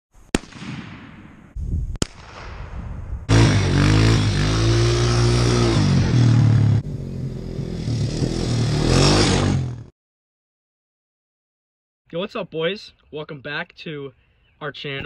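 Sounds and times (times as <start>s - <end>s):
off-road vehicle engine revving: 3.3s - 9.9s.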